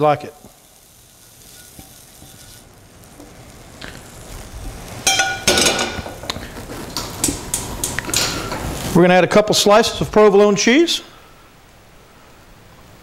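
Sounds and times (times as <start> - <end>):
meat sizzling in a skillet: 0.0 - 9.0
tongs clanking on metal: 5.0 - 8.6.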